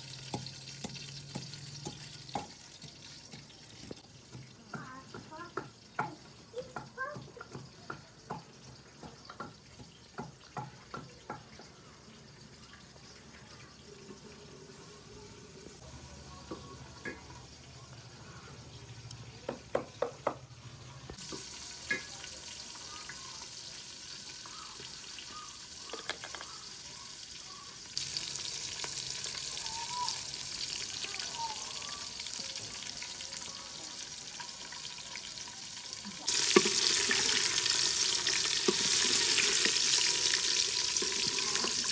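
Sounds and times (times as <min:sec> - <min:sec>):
sizzling hiss from cooking pot: 0:00.0 - 0:19.4, 0:20.6 - 0:41.9.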